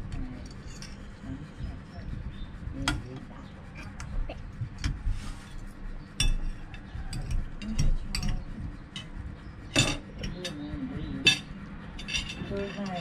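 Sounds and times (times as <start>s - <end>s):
cutlery clinking against dishes: 9.7s - 10.6s.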